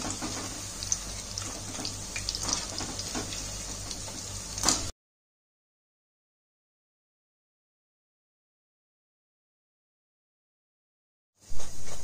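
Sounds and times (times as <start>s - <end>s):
deep-frying sizzle in oil: 0.0s - 4.9s.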